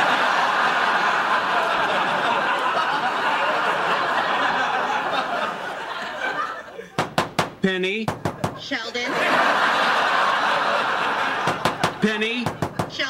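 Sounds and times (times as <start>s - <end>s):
studio audience laughing: 0.0s - 7.0s, 8.4s - 12.4s.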